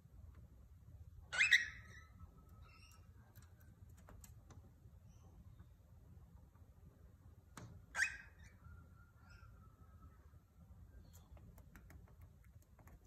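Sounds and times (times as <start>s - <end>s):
parrot call and whistle: 1.3s - 3.1s, 7.9s - 10.0s
soft chirps and clicks: 2.3s - 6.7s, 10.9s - 13.0s.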